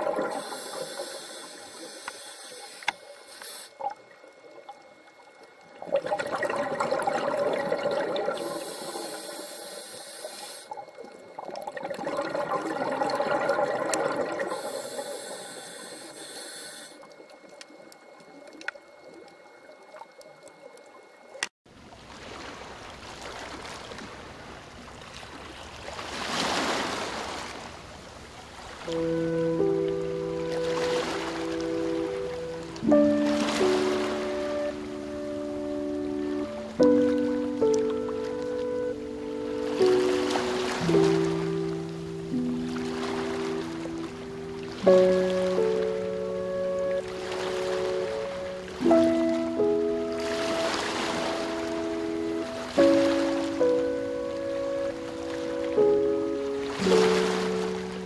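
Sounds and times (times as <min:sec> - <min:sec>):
exhaled bubbles gurgling: 0:00.0 - 0:01.8, 0:05.7 - 0:09.5, 0:10.8 - 0:16.1
underwater water wash: 0:00.0 - 0:21.4, 0:26.4 - 0:58.0
regulator inhalation hiss: 0:00.3 - 0:03.8, 0:08.4 - 0:10.8, 0:14.4 - 0:17.1.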